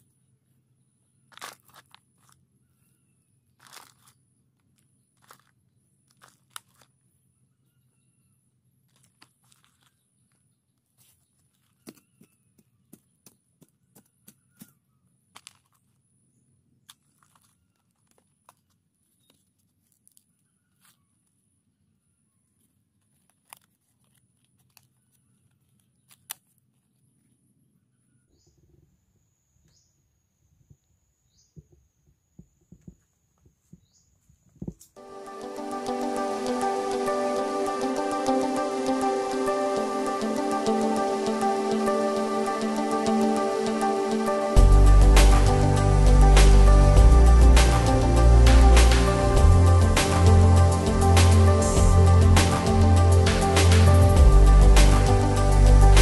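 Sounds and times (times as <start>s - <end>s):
dry soil crunching into plastic bottle: 1.3s - 2.5s, 3.5s - 7.1s, 8.8s - 16.0s, 16.8s - 21.1s, 22.6s - 27.0s.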